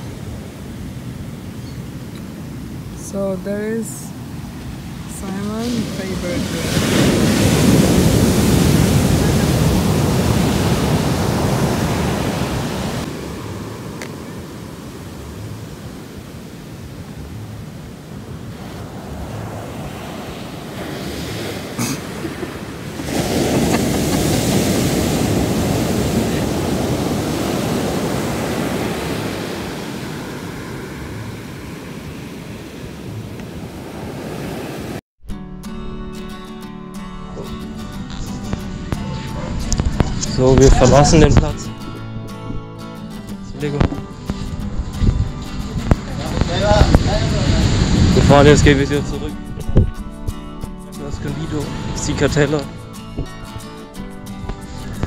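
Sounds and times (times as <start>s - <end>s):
ocean waves crashing on beach: 0.0s - 35.0s, 43.6s - 49.8s, 51.0s - 55.0s.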